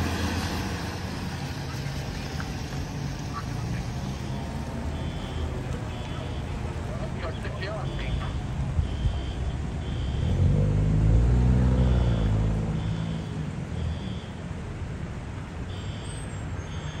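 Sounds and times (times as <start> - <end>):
vehicle engine rumble: 0.0 - 17.0
faint high-pitched beeps: 5.0 - 10.4.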